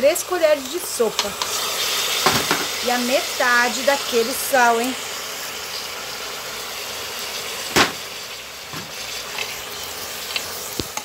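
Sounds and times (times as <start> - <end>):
vegetables sizzling in hot oil: 0.0 - 11.0
sharp knock: 7.7 - 8.0.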